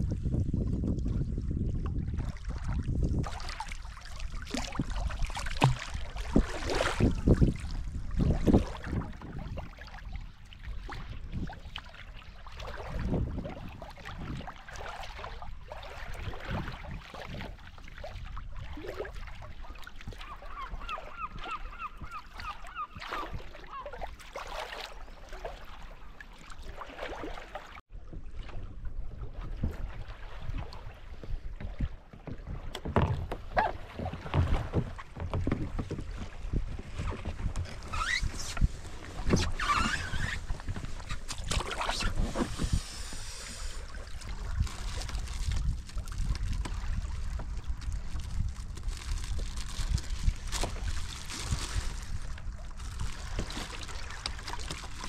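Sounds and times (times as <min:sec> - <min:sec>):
water lapping at hull: 0:00.0 - 0:55.0
paddle splashing in water: 0:00.6 - 0:55.0
bird calling repeated notes: 0:20.3 - 0:23.8.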